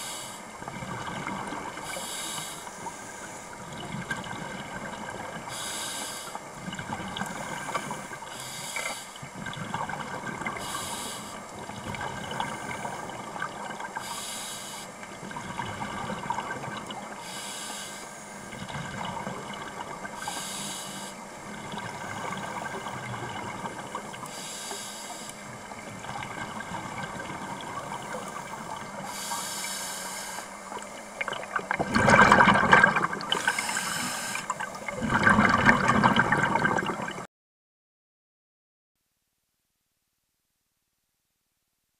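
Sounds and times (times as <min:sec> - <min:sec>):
water hissing: 0:01.8 - 0:03.6, 0:10.4 - 0:15.0, 0:17.1 - 0:18.6, 0:20.1 - 0:21.2, 0:21.8 - 0:36.8
water rushing: 0:30.5 - 0:37.3.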